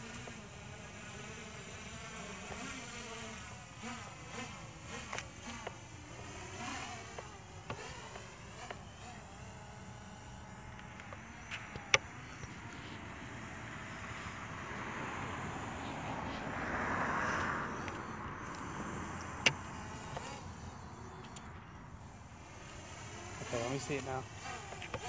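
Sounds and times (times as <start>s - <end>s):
drone propeller buzzing: 0.0s - 25.0s.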